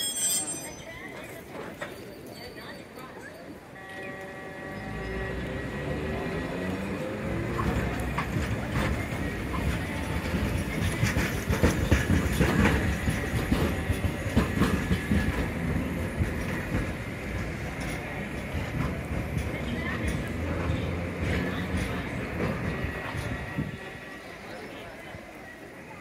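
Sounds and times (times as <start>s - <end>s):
tram wheels clicking over rail joints: 5.3s - 25.7s.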